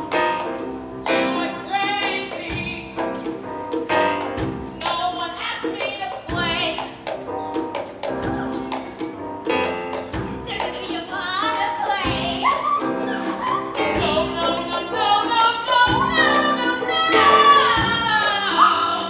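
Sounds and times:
woman singing: 0:01.2 - 0:02.9, 0:04.8 - 0:06.9, 0:10.4 - 0:19.0.

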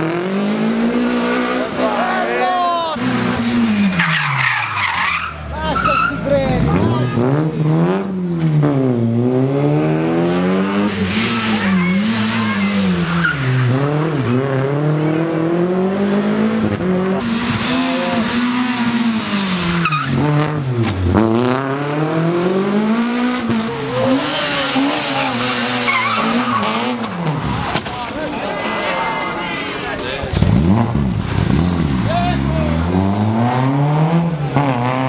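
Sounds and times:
rally car engines revving: 0:00.0 - 0:35.0
tyre squeals: 0:03.9 - 0:06.3, 0:19.6 - 0:20.2, 0:23.7 - 0:27.3.

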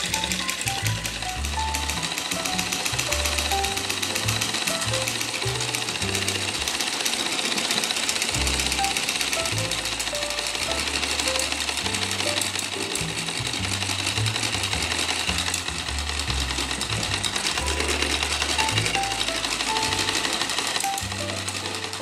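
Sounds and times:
solenoid engine clattering: 0:00.0 - 0:22.0
background music with bassline: 0:08.3 - 0:22.0.

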